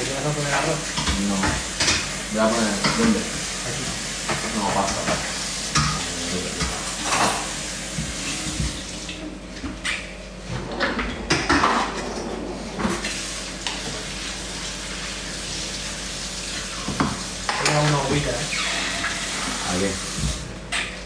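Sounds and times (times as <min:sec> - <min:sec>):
pots and pans clattering: 0:00.4 - 0:08.9, 0:09.6 - 0:14.2.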